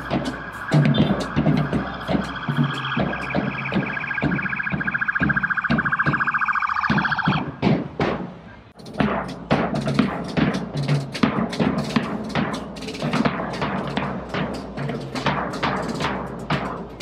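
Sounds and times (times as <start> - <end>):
police siren pulsing: 0.0 - 7.6
bass drum beats: 0.0 - 8.2.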